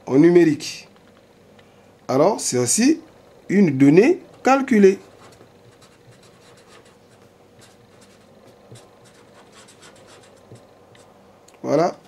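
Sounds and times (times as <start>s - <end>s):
pen scratching on paper: 5.1s - 11.1s.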